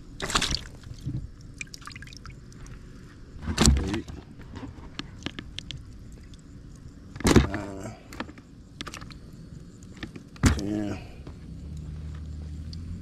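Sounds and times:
fish flopping in plastic bucket: 0.2 - 1.3
small scrapes and clicks: 3.4 - 6.4.

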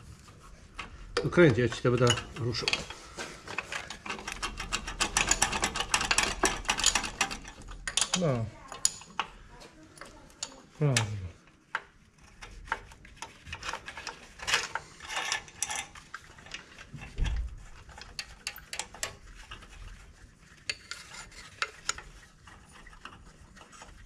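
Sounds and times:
spanner clinking on metal nuts: 1.2 - 3.0, 3.7 - 9.3
spanner rasping against metal: 1.2 - 3.0, 3.6 - 9.3, 12.2 - 16.0.

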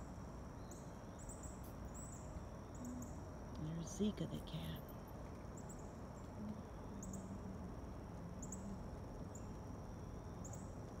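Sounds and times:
high-pitched insect drone: 2.6 - 4.9, 5.6 - 10.8.

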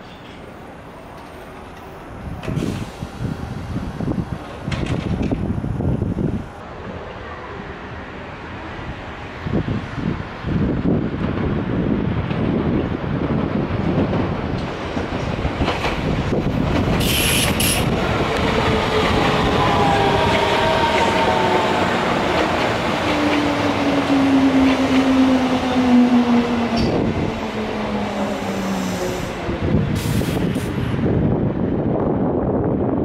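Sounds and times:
train rumbling: 0.0 - 33.0
high hiss: 17.0 - 17.9.

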